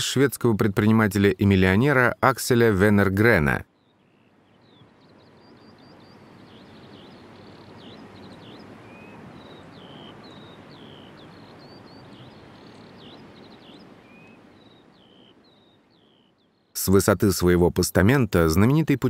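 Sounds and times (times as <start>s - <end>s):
small birds chirping: 0.0s - 19.0s
steady outdoor hiss: 0.0s - 19.0s.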